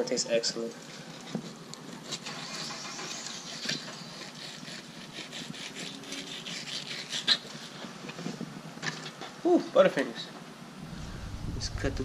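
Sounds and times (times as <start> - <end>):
knife scraping on cutting board: 3.2 - 7.8.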